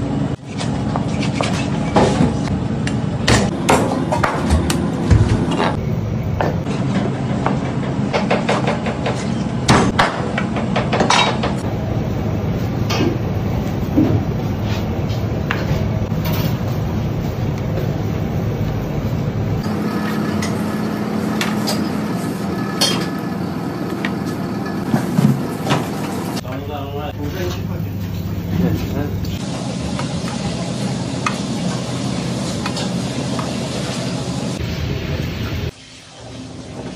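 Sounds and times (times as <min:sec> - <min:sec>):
low hum: 0:04.9 - 0:06.7, 0:11.6 - 0:21.2.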